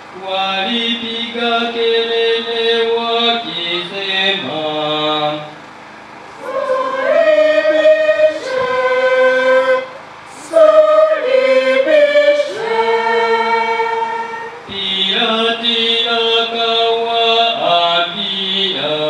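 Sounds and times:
choir chanting: 6.3s - 19.0s.

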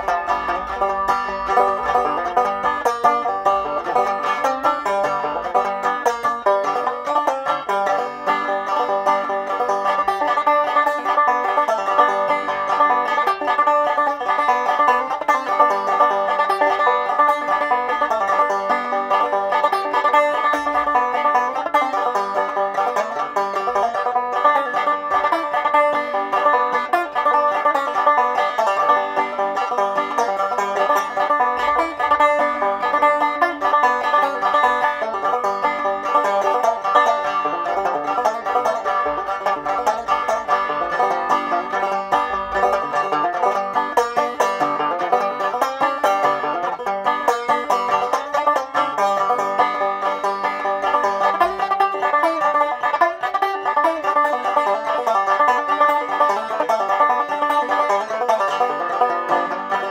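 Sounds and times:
banjo plucked fast: 0.0s - 59.9s.

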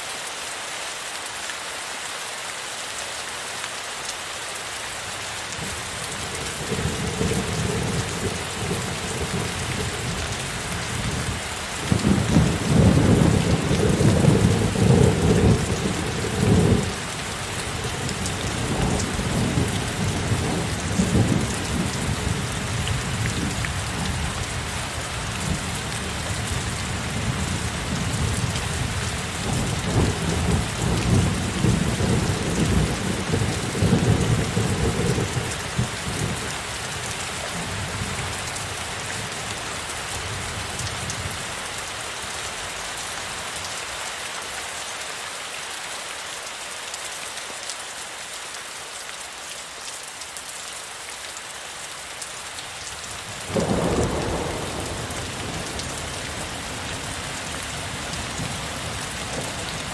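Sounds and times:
heavy rain: 0.0s - 59.9s
thunder rumbling: 53.5s - 57.2s.

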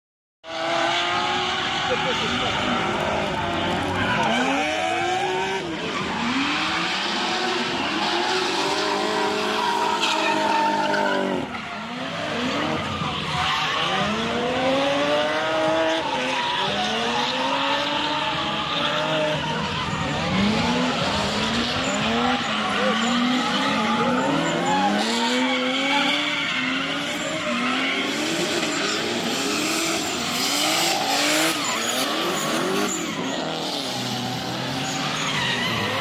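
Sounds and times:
car engines revving hard: 0.4s - 36.0s
tyres squealing: 15.6s - 36.0s.

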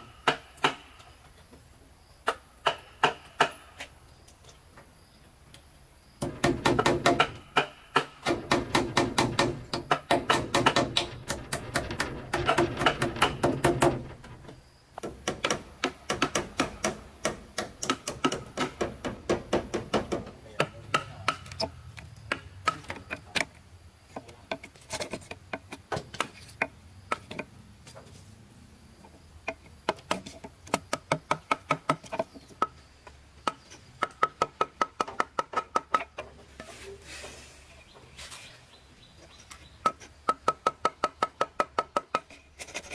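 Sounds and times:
hand tools knocking wood: 2.3s - 3.6s, 6.2s - 21.7s, 24.1s - 27.5s, 29.4s - 32.8s, 33.4s - 36.3s, 39.8s - 42.3s.

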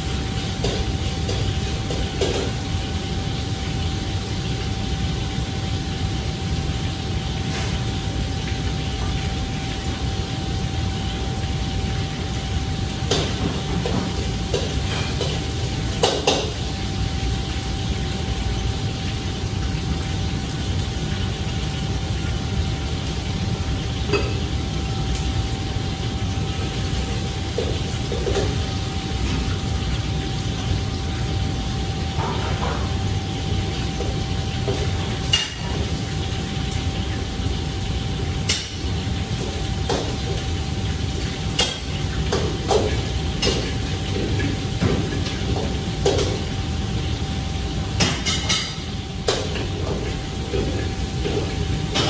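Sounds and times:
wok range and extraction roar: 0.0s - 52.0s
metal utensils clanking on pans: 0.2s - 2.7s, 13.0s - 16.7s, 24.0s - 24.5s, 32.2s - 33.0s, 33.8s - 37.1s, 38.4s - 46.6s, 47.9s - 52.0s.

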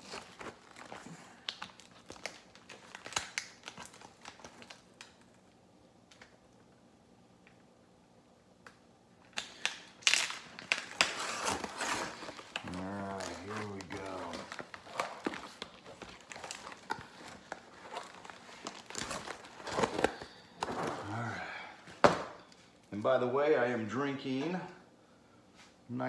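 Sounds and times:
cardboard rustling and crinkling: 0.0s - 5.3s, 10.0s - 21.4s
knife scraping packing tape: 11.0s - 12.3s.

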